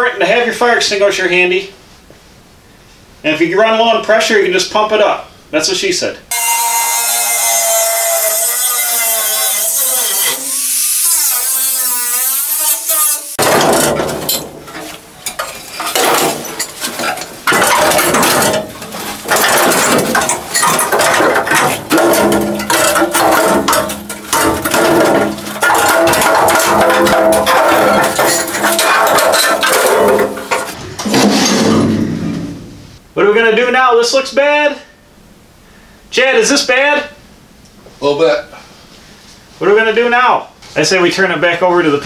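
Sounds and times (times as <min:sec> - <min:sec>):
cut-off wheel cutting steel: 0:06.3 - 0:13.9
sheet metal clanking and scraping: 0:12.6 - 0:33.0.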